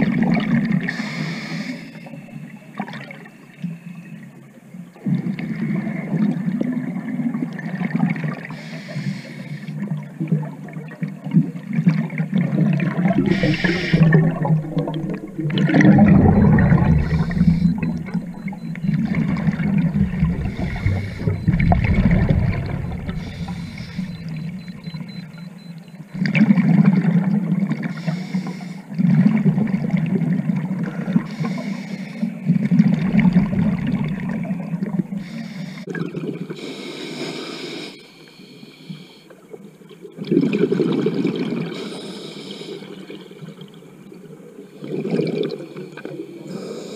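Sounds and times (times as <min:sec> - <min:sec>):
diver inhaling through regulator: 0:00.9 - 0:02.0, 0:08.6 - 0:09.7, 0:13.1 - 0:25.0, 0:27.9 - 0:28.9, 0:35.1 - 0:35.9
gurgling exhaled bubbles: 0:09.9 - 0:25.5, 0:28.9 - 0:31.3, 0:32.4 - 0:35.2, 0:44.8 - 0:45.6.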